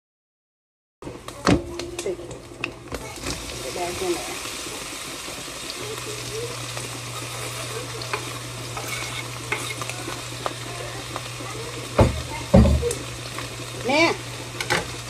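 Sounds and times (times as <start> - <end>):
food sizzling in a frying pan: 1.0 - 15.0
heavy knock: 12.0 - 13.0.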